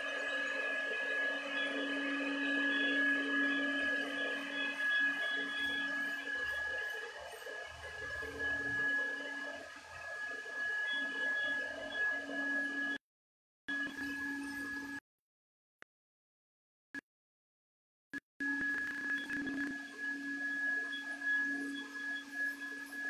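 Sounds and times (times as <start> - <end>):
electric fogger motor whine: 0.0 - 13.0, 18.5 - 23.0.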